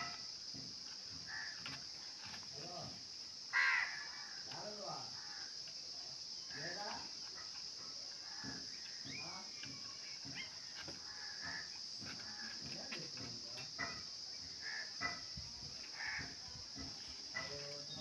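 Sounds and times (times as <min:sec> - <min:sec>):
high-pitched insect drone: 0:00.0 - 0:18.0
birds chirping: 0:04.4 - 0:18.0.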